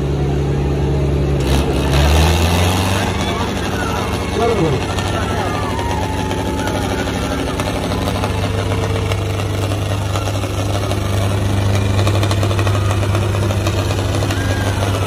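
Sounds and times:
tractor diesel engines under load: 0.0s - 15.0s.

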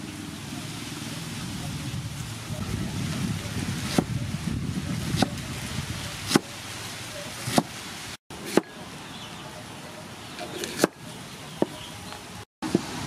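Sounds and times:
cleaver chopping on wooden block: 7.4s - 7.7s, 8.4s - 8.8s, 10.6s - 11.0s.

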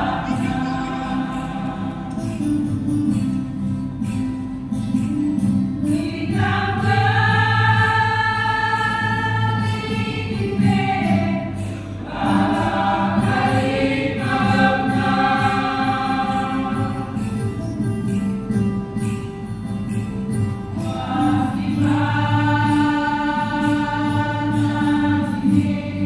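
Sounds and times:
church choir singing a hymn: 0.0s - 2.8s, 6.0s - 17.2s, 20.9s - 26.0s.

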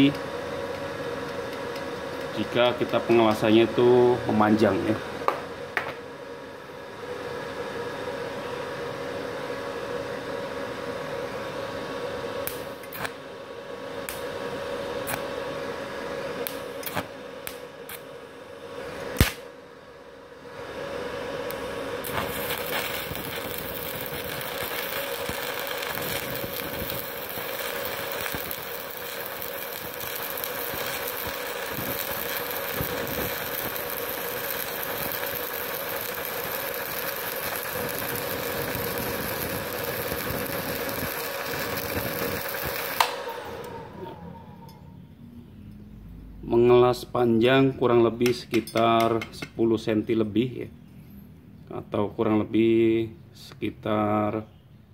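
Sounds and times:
welding arc buzzing: 0.0s - 6.8s, 11.2s - 44.6s
welding rod striking clicks: 12.4s - 13.2s, 14.0s - 14.3s, 15.0s - 15.2s, 16.4s - 18.1s, 19.2s - 19.4s, 21.5s - 43.8s, 48.2s - 49.6s.

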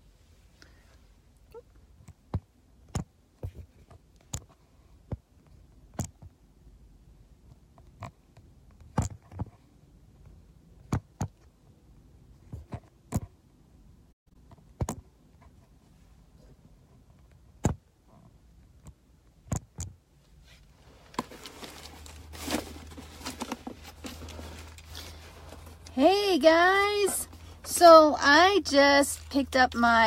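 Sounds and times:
rustling and knocks: 21.0s - 25.9s.

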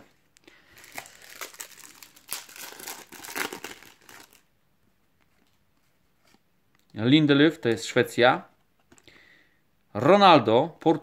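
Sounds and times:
foil packet crinkling: 0.5s - 4.4s
foil packet tearing: 0.8s - 4.4s.

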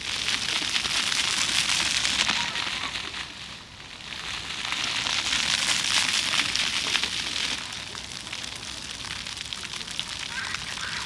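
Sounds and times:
fountain jets splashing on stone: 0.0s - 11.0s.

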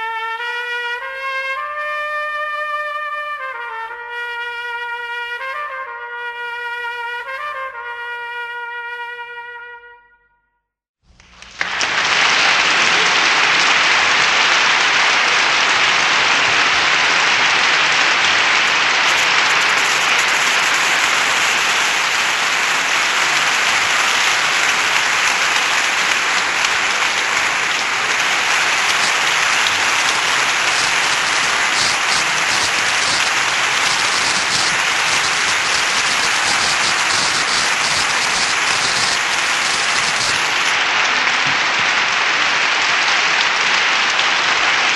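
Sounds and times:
crowd applause: 11.1s - 44.9s.

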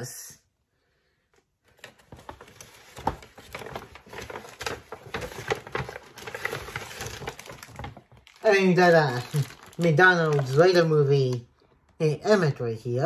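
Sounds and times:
paper bag rustling and crinkling: 1.7s - 11.4s.

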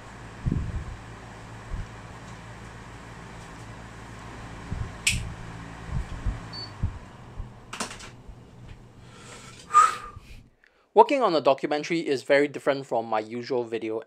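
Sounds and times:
low room hum: 0.0s - 10.9s
sharp click: 5.0s - 5.3s.

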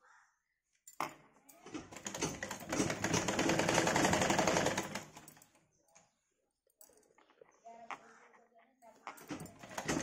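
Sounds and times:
sewing machine stitching: 1.7s - 5.3s, 9.3s - 10.0s.

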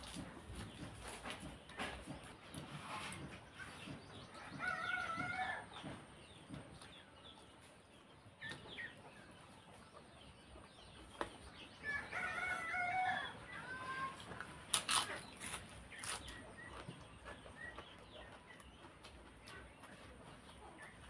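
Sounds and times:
rooster crowing: 4.4s - 5.6s, 11.9s - 13.7s
chewing: 14.3s - 21.0s.

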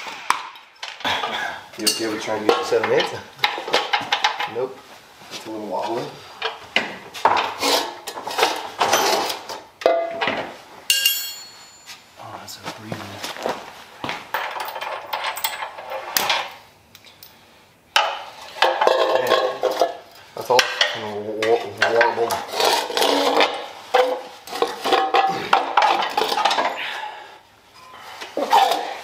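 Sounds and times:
tools and steel parts clanking: 0.6s - 4.6s, 7.2s - 12.0s, 14.3s - 17.3s, 18.0s - 26.9s.

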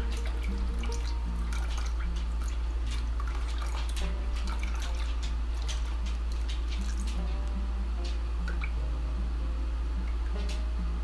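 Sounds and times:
liquid pouring into a bowl: 0.0s - 7.2s
steady low hum: 0.0s - 11.0s.

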